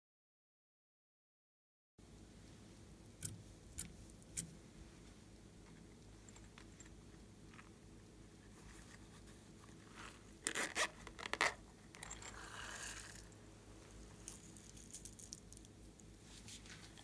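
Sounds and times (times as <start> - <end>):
flakes rattling out: 14.2 - 15.8.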